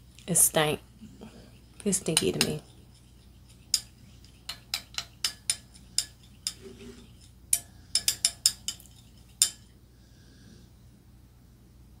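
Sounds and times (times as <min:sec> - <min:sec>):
metal straw clinking glass: 0:07.6 - 0:09.6.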